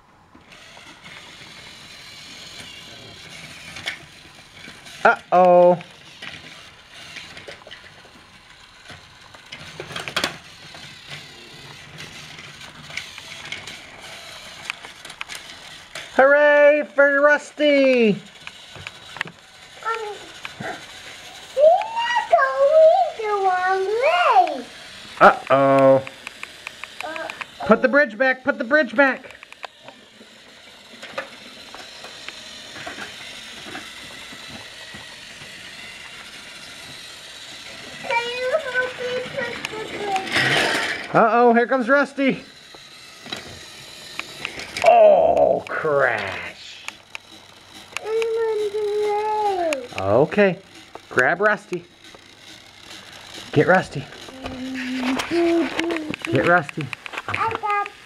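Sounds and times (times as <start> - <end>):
small toy motor whirring: 0.0 - 58.0
plastic clicks and clatter: 5.4 - 16.2, 54.2 - 58.0.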